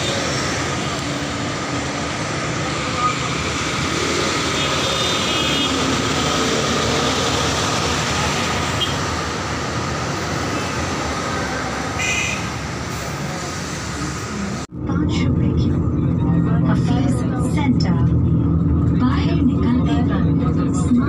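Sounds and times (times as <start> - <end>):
road traffic: 0.0 - 21.0
bus drawing up: 5.8 - 21.0.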